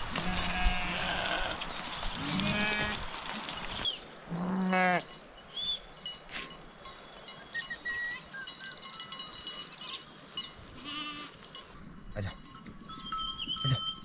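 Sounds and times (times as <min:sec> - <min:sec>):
sheep bleating: 0:00.1 - 0:01.6, 0:02.2 - 0:03.0, 0:04.3 - 0:05.1, 0:10.8 - 0:11.4.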